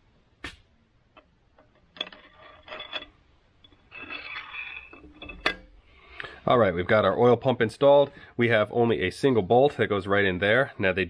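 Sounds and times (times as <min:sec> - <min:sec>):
metal clinks and scrapes: 0:01.6 - 0:05.9.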